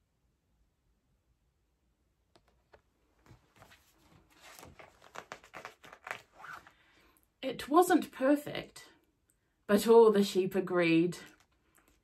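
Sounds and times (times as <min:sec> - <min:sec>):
book pages rustling and tapping: 0:02.4 - 0:06.7.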